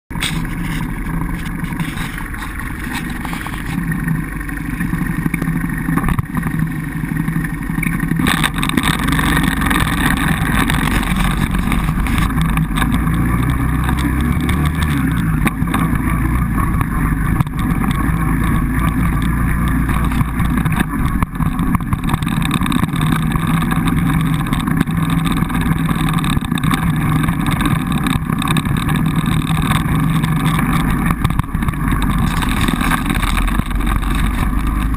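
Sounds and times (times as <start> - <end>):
quad bike engine running: 0.1 - 34.9.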